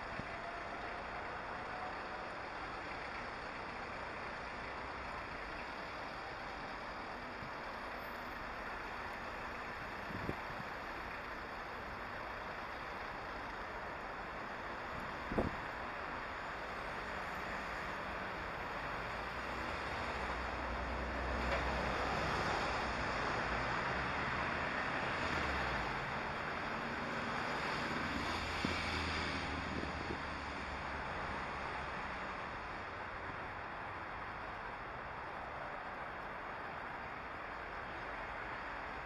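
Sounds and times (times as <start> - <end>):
road traffic: 0.0 - 39.0.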